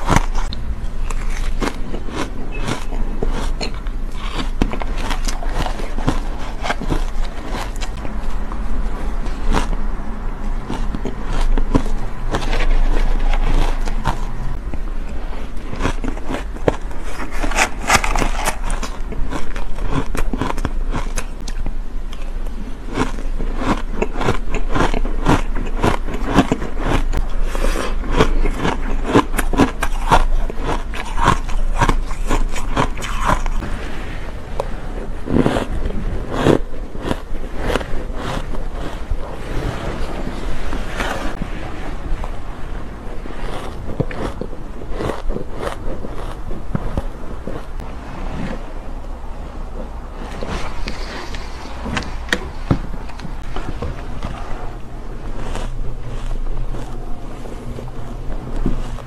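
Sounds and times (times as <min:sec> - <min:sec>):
shaved ice crunching: 0:00.0 - 0:09.8, 0:15.1 - 0:21.6, 0:22.9 - 0:47.0.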